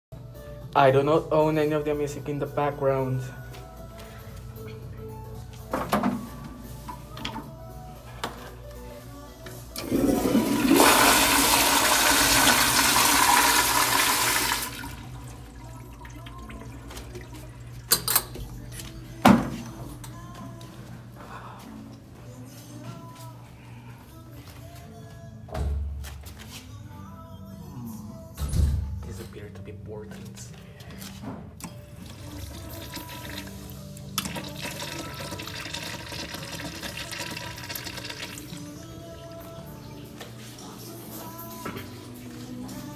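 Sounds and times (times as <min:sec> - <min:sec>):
water rushing into urinal bowl: 0:09.8 - 0:17.5, 0:34.2 - 0:38.4
toilet flushing: 0:09.8 - 0:17.9, 0:32.0 - 0:38.6.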